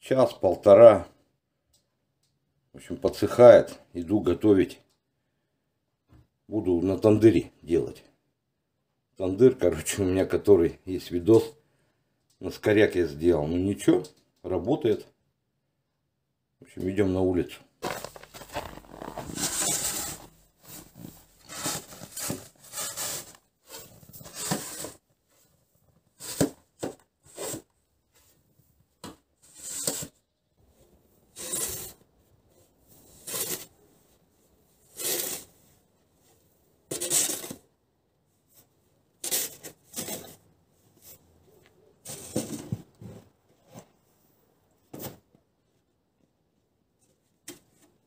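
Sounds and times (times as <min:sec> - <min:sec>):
metal shovel scraping snow: 0:17.8 - 0:25.0, 0:31.3 - 0:32.0, 0:33.1 - 0:33.7, 0:34.9 - 0:35.5.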